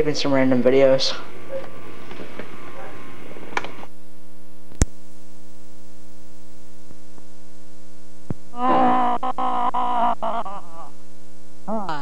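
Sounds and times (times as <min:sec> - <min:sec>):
electrical hum: 0:00.0 - 0:12.0
static: 0:01.3 - 0:12.0
sharp click: 0:04.7 - 0:05.0.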